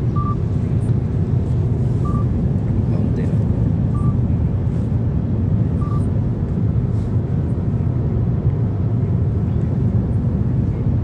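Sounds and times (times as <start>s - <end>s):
car cabin road and engine noise: 0.0s - 11.0s
short beep: 5.8s - 6.1s.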